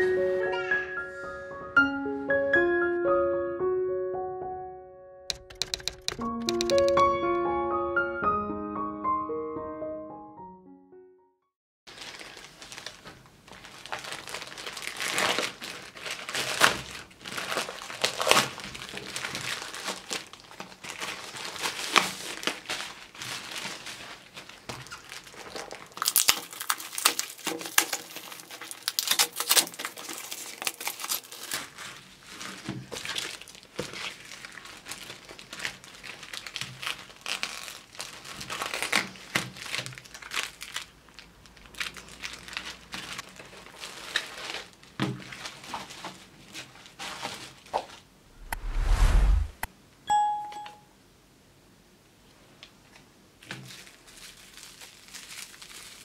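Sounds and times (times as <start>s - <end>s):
packing tape ripping: 11.9s - 45.6s
cardboard and plastic crinkling: 11.9s - 48.0s, 53.4s - 56.0s.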